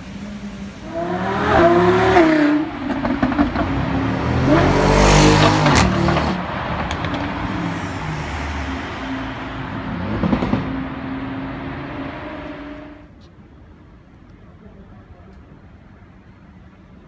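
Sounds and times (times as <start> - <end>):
car engine revving: 0.4 - 13.0
exhaust cracks: 10.0 - 10.9.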